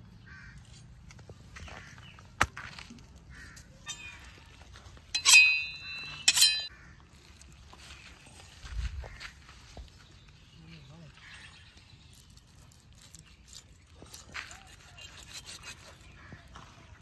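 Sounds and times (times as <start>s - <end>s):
metal scraping knife blade: 3.8s - 6.7s.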